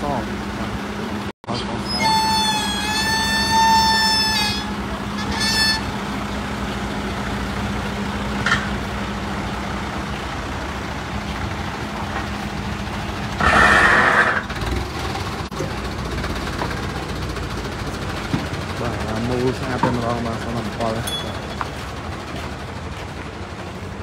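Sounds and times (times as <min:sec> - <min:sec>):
forklift engine idling: 0:00.0 - 0:24.0
vehicle horn blasts: 0:01.9 - 0:06.1.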